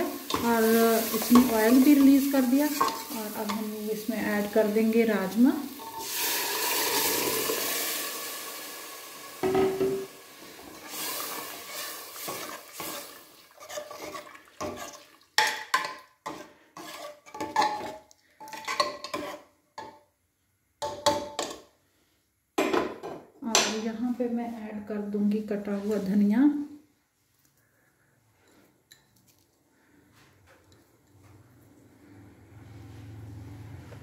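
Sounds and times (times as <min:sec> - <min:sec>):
hiss of beans in hot gravy: 0:00.0 - 0:15.3
ladle scraping metal pot: 0:00.2 - 0:03.7, 0:05.8 - 0:07.4, 0:10.8 - 0:19.5.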